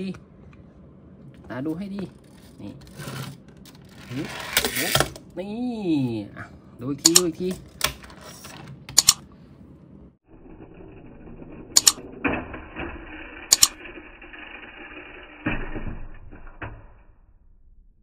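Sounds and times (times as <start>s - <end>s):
toy car motor whirring: 10.4s - 15.5s.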